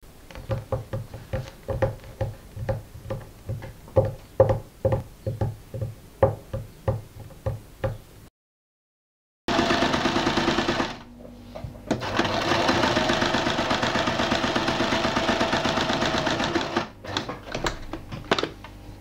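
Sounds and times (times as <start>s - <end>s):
sewing machine stitching: 9.5s - 11.1s, 11.9s - 17.8s.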